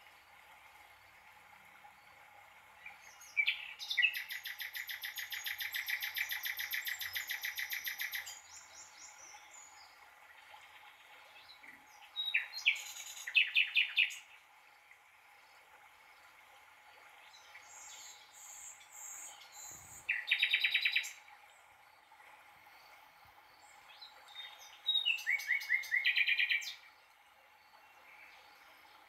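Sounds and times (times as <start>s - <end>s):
songbird trilling: 19.0s - 21.1s.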